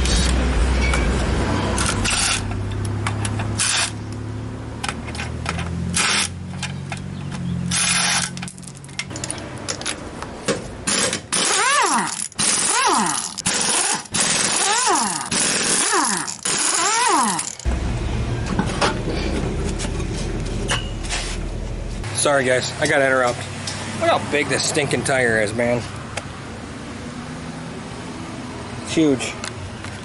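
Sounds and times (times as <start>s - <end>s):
air impact wrench bursts: 3.6s - 4.0s, 6.0s - 6.4s, 7.7s - 8.3s, 10.9s - 17.7s.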